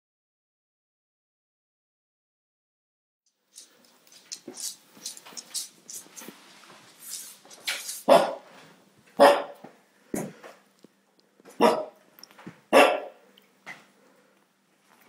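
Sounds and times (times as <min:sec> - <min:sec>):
dog barking: 0:08.1 - 0:08.5, 0:09.2 - 0:09.6, 0:11.6 - 0:12.0, 0:12.7 - 0:13.2.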